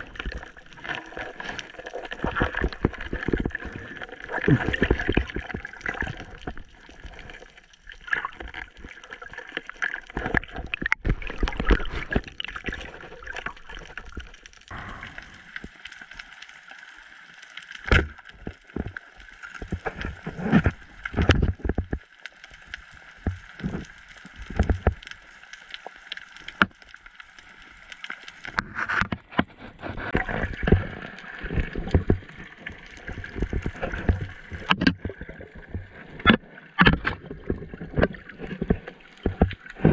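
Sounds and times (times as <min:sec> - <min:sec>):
underwater sloshing and gurgling: 0:00.0 - 0:39.9
sharp knocks and clicks: 0:36.2 - 0:38.2.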